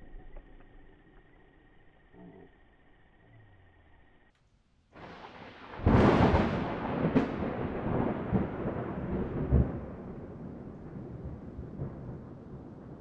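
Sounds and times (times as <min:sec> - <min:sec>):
loud boom with rolling rumble: 0:05.0 - 0:13.0.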